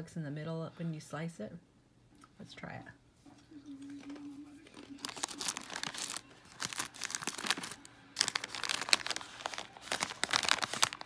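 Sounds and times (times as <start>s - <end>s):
plastic bag crinkling: 4.0s - 11.0s.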